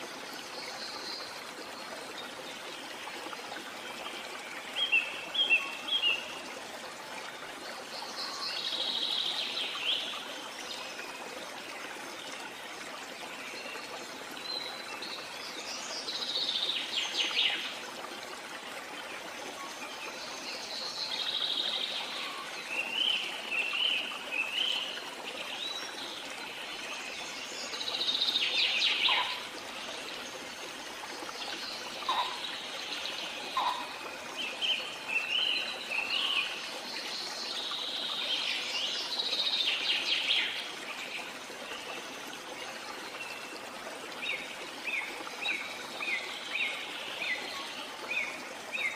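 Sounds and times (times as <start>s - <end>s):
running water: 0.0s - 48.9s.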